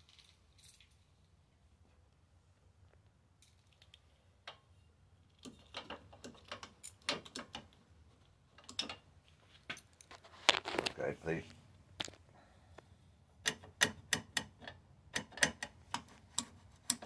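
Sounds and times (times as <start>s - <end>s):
metal pedal linkage clicking: 5.4s - 7.7s, 8.6s - 9.0s, 13.4s - 17.0s.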